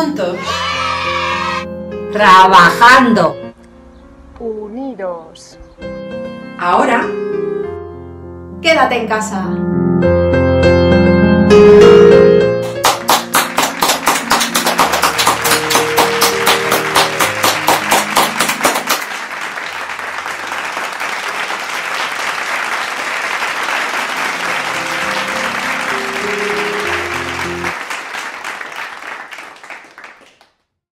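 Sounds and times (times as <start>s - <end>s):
background music: 0.0s - 19.4s, 23.7s - 27.8s
crowd applauding: 0.4s - 1.7s, 12.6s - 30.6s
hands clapping quickly: 12.6s - 30.6s.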